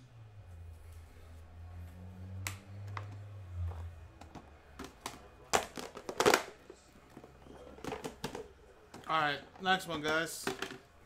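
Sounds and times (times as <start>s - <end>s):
objects handled on a desk: 2.8s - 11.0s
objects clattering: 2.9s - 11.0s.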